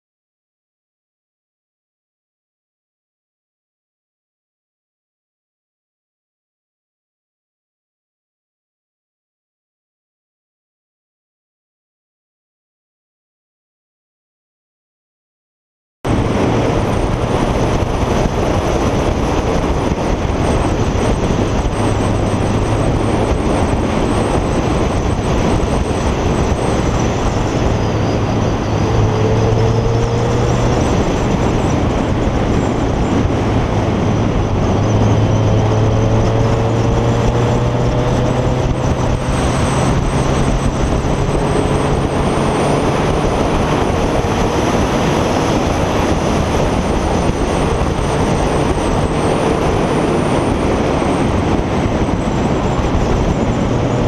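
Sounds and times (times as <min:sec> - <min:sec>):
wind and road noise: 0:16.0 - 0:54.0
motorcycle engine hum: 0:16.1 - 0:54.0.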